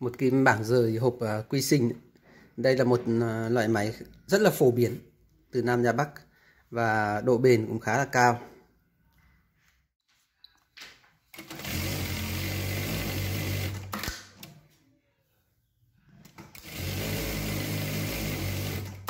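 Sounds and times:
sewing machine stitching: 11.3 - 14.2, 16.2 - 19.0.

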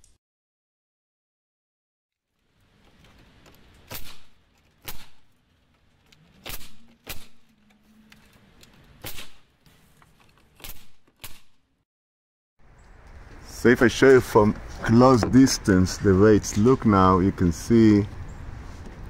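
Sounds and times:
nail gun shots: 3.8 - 5.2, 6.4 - 7.5, 9.0 - 9.5, 10.6 - 11.6.

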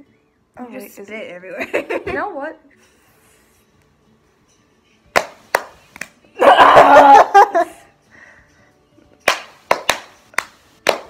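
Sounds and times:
hand claps: 5.1 - 6.2, 9.2 - 11.0.

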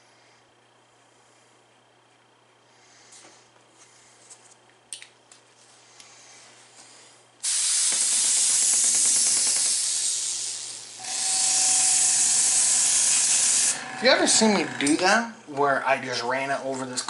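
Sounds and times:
airbrush spraying hiss: 7.4 - 14.6.

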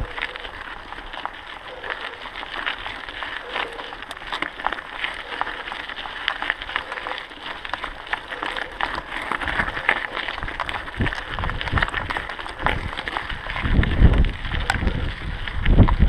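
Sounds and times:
bike rattling: 0.0 - 16.0
bike tyres crunching on gravel: 0.0 - 16.0
wind buffeting microphone: 10.3 - 16.0.

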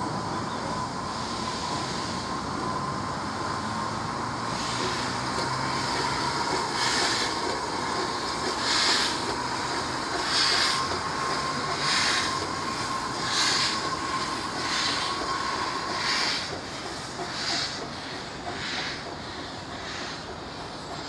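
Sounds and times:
steady hiss of steam: 0.0 - 21.0
steam locomotive exhaust beats: 0.0 - 21.0.

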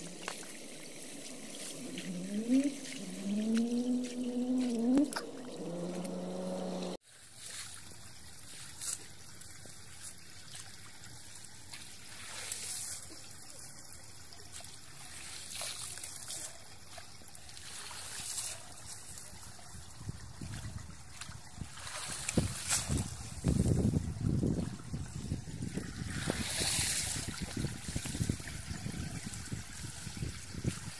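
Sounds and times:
water splashes: 0.0 - 30.9
water trickling through a drain: 0.0 - 30.9
short wavering pitched sound: 1.5 - 7.0.

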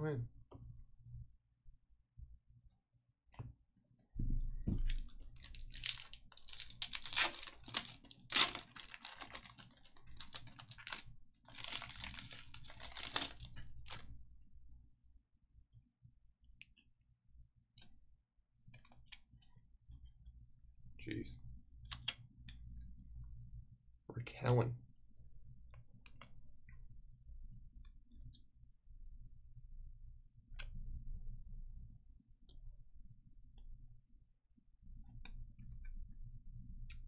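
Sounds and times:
wrapper tearing and crinkling: 4.9 - 14.0.

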